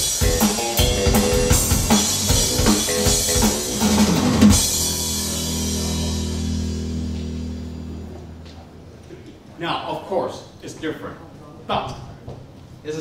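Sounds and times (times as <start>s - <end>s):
rock music over loudspeakers: 0.0s - 7.6s
held low chord ringing: 0.8s - 9.0s.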